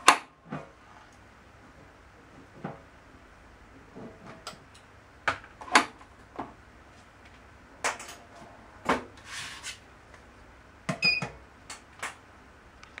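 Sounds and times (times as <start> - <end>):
card reader beep: 11.0 - 11.3.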